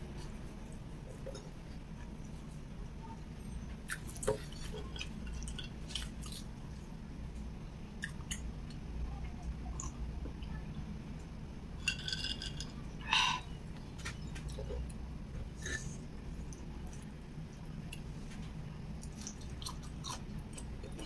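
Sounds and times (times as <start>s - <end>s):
steady low hum: 0.0s - 21.0s
soft chewing: 3.8s - 10.6s, 13.4s - 21.0s
ice glass clinking: 11.8s - 12.7s.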